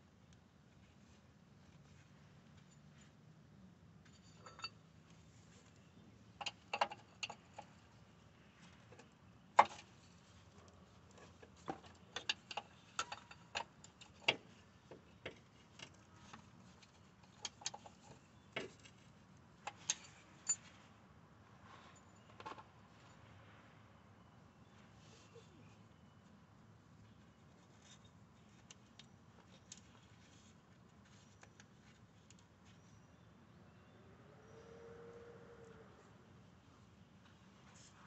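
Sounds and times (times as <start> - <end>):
metal tools clinking: 4.1 - 4.8.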